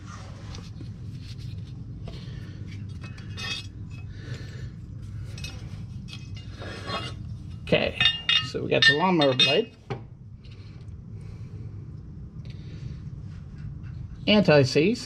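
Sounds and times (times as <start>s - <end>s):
low hum: 0.0s - 15.0s
small metal parts clinking: 2.8s - 4.0s, 8.0s - 9.7s.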